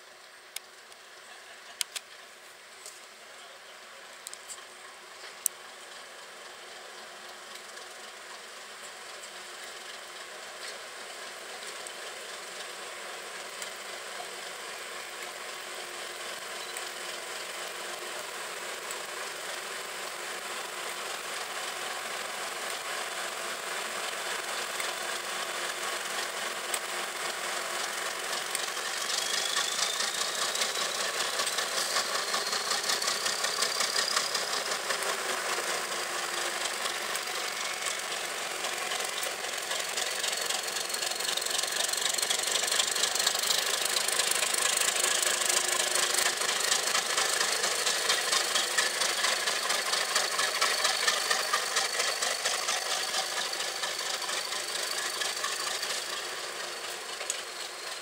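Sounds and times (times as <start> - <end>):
diesel locomotive engine running: 0.0 - 58.0
high whistle: 29.1 - 31.0.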